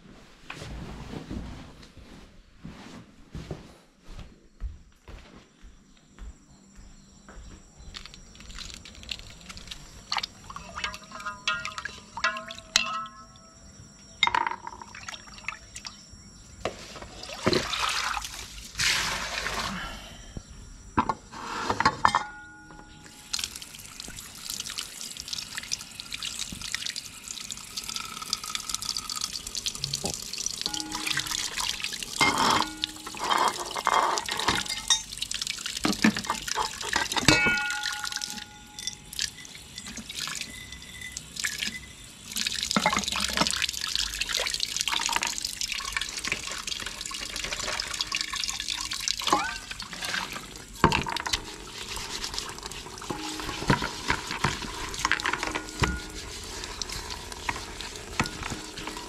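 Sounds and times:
water stream into bucket: 7.9 - 13.4, 16.9 - 19.9, 23.0 - 59.0
water splashing in basins: 8.0 - 13.2, 14.6 - 16.0, 16.9 - 19.9, 23.2 - 59.0
pots and plates knocking: 10.6 - 13.4, 21.9 - 22.8, 30.7 - 35.0, 35.9 - 39.0, 49.2 - 50.0, 53.0 - 59.0.

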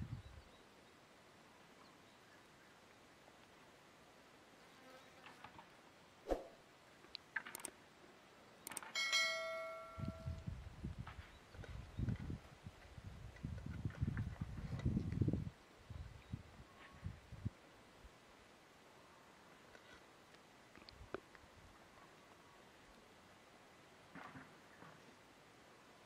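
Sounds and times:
click: 7.1 - 7.7, 8.6 - 8.9
soft clicks: 7.1 - 7.8, 8.6 - 8.9
bell-like notification chime: 9.0 - 10.4.

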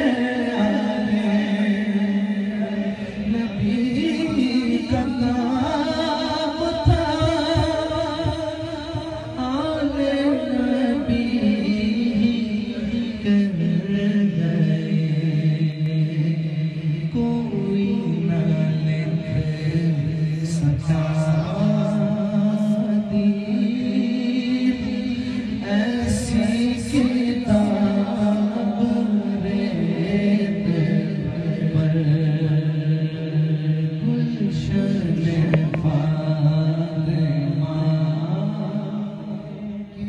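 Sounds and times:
men singing a cappella: 0.0 - 40.0.

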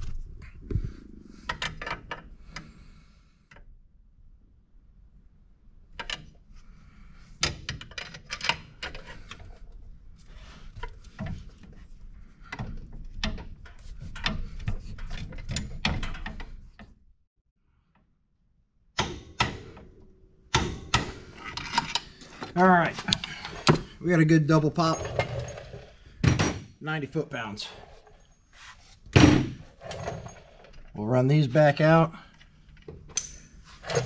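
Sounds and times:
metal clicks and clanks of tools: 20.5 - 23.9, 32.3 - 34.0.

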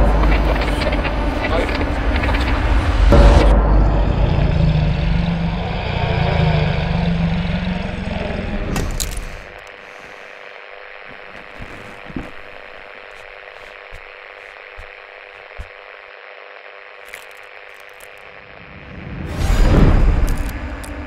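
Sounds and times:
faint steady hum: 0.0 - 21.0
static hiss: 8.0 - 21.0.

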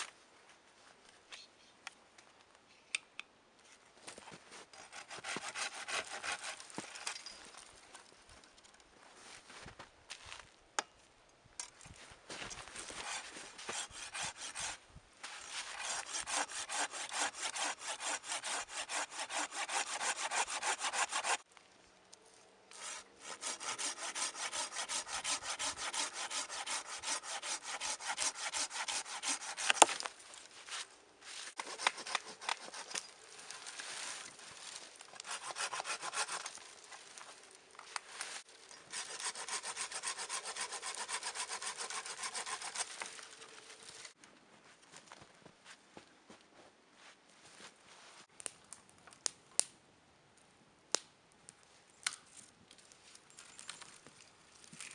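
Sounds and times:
pruning saw cutting branch: 4.8 - 7.0, 13.0 - 21.4, 22.7 - 30.1, 31.5 - 33.2, 34.2 - 36.7, 38.8 - 44.2.

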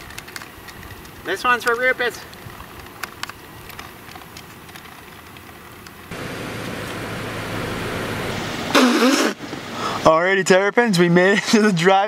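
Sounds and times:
engine hum inside vehicle cab: 5.1 - 10.0
short vocal sound: 8.7 - 9.4.

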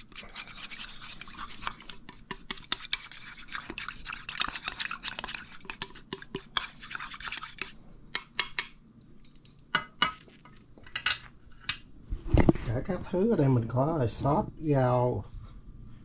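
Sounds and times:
spoon stirring in a small bowl: 0.0 - 10.6.

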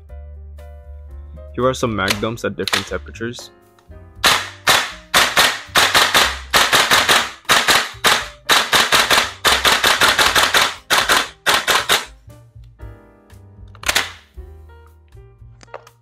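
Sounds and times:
airsoft rifle shots: 4.2 - 12.1, 13.9 - 14.3
bolt clacking: 4.2 - 12.1.

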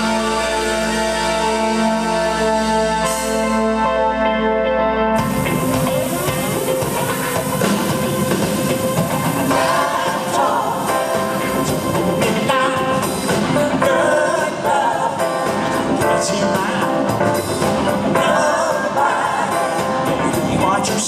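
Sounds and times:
live band playing: 0.0 - 21.0
man singing lead: 5.6 - 21.0.

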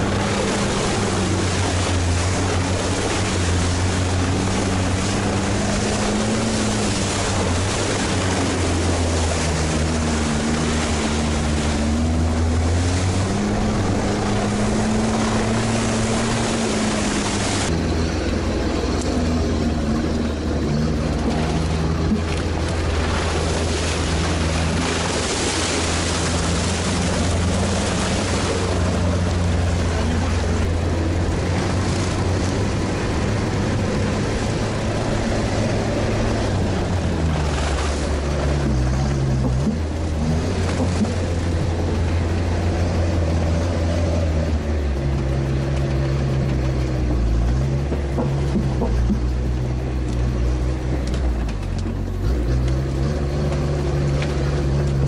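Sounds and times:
diesel engine running: 0.0 - 55.0
steady rushing noise: 0.0 - 55.0.

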